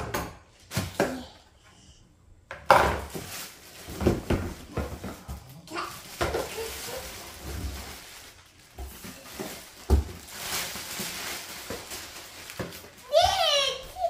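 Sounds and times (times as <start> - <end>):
plastic bag crinkling: 2.9 - 14.0
knocks and thump: 3.9 - 5.4.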